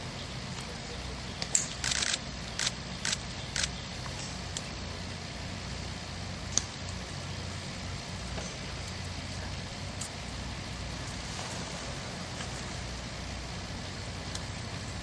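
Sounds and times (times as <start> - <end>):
low outdoor rumble: 0.0 - 15.0
camera shutters clicking: 1.6 - 3.7.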